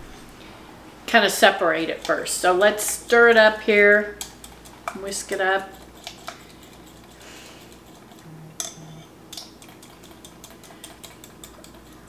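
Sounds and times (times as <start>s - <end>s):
whisk clinking against glass: 7.8s - 12.0s.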